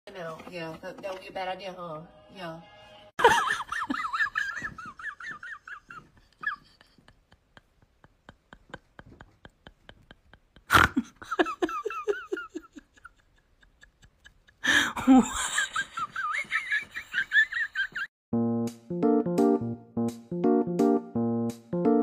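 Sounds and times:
person laughing: 3.2 - 18.1
piano music: 18.3 - 22.0.

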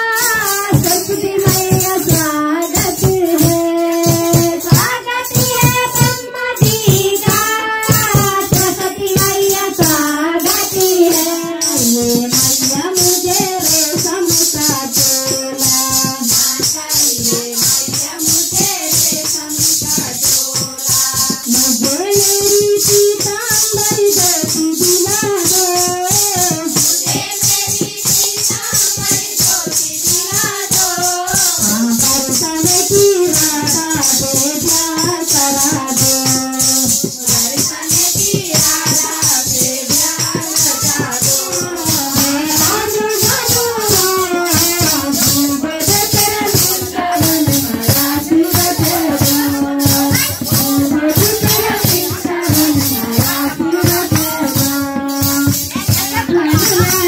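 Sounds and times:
hand percussion beat: 0.0 - 57.0
devotional hymn singing: 26.5 - 32.7, 37.5 - 55.5.

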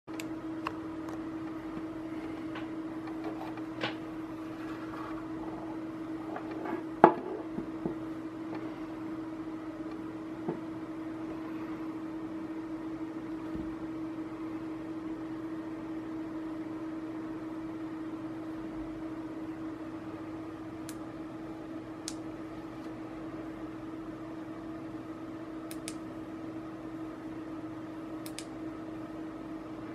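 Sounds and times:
low electric hum: 0.1 - 29.9
knock on wooden table: 7.0 - 8.0.

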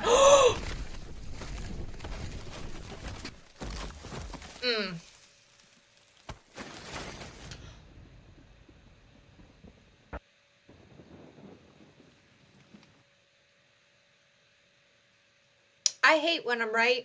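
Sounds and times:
branches and leaves rustling: 0.0 - 9.4.

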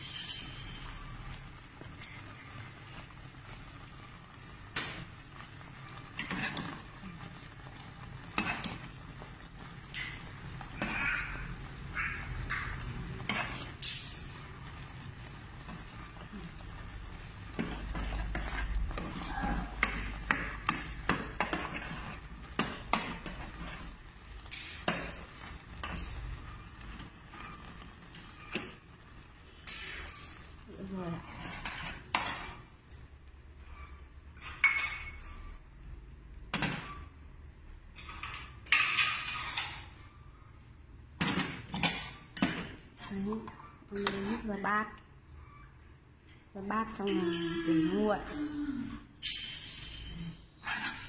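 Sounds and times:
metal ladle clinking in metal pot: 0.0 - 1.0, 49.2 - 51.0
metal ladle against pot: 5.9 - 8.9, 17.1 - 26.2.

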